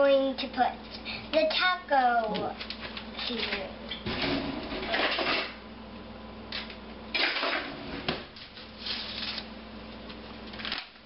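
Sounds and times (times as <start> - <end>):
utensils and dishes clattering: 3.4 - 5.6.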